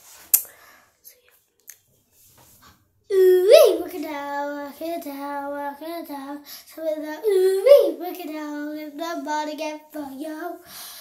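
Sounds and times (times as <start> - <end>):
girl singing unaccompanied: 3.1 - 11.0.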